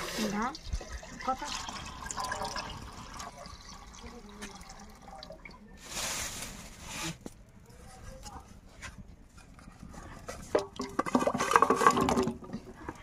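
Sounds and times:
water pouring into metal pot: 0.0s - 6.3s, 10.6s - 13.0s.

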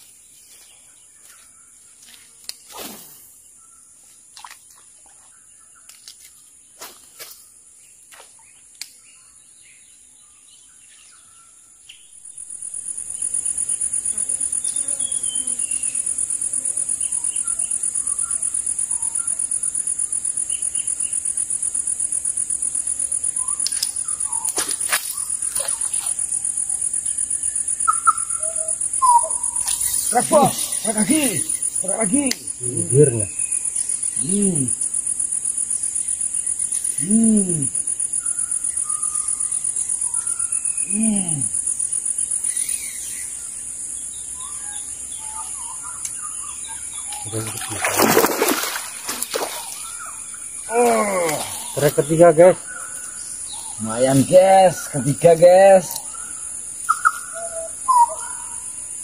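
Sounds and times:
bird chirps: 8.4s - 43.6s, 44.2s - 59.0s
high-pitched insect chorus: 12.0s - 59.0s.

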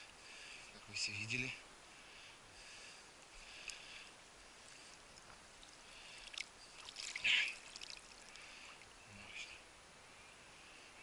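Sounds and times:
rustling of wet grass: 2.6s - 9.7s.

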